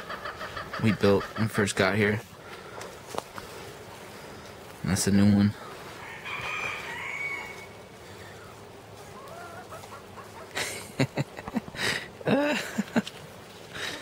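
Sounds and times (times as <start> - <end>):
chickens clucking: 0.0 - 12.2
rooster crowing faintly: 5.9 - 8.4.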